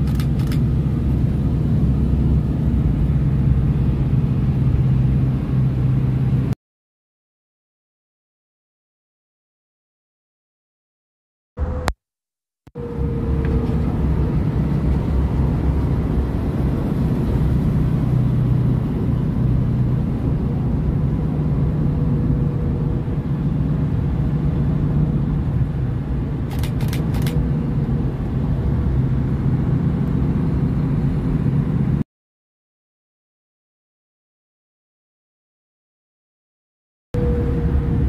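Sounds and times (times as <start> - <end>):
sharp clicks: 0.0 - 0.6, 26.5 - 27.4
vehicle engine and road noise: 0.0 - 6.6, 11.6 - 12.0, 12.7 - 32.0, 37.2 - 38.0
faint steady whine: 37.2 - 38.0.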